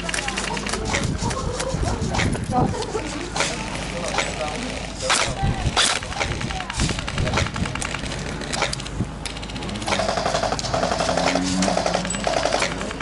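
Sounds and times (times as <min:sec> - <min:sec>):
airsoft guns firing bursts: 0:03.4 - 0:13.0.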